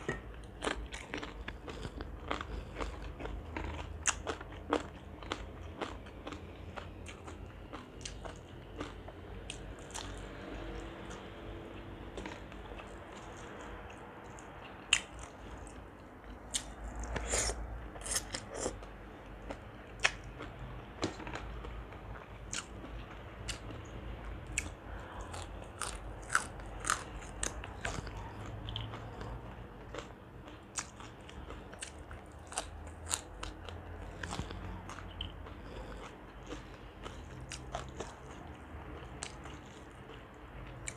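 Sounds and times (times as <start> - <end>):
person chewing crunchy food: 0.0 - 40.9.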